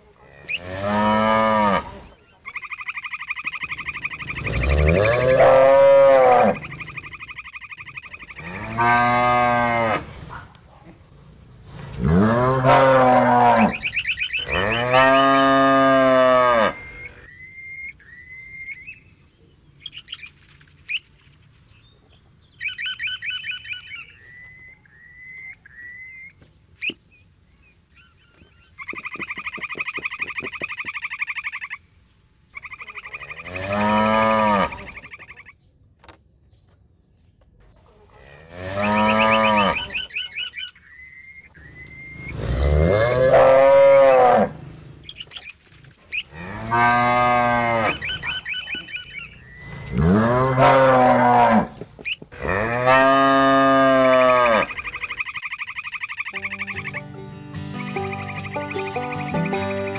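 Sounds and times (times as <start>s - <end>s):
cows mooing: 0.2s - 2.0s, 4.4s - 6.9s, 8.3s - 10.2s, 12.0s - 17.3s, 33.2s - 34.9s, 38.2s - 40.1s, 42.1s - 44.6s, 46.3s - 49.0s, 49.8s - 55.0s
higher short calls and chirps: 2.3s - 5.3s, 13.7s - 14.8s, 47.9s - 49.9s, 54.7s - 59.9s.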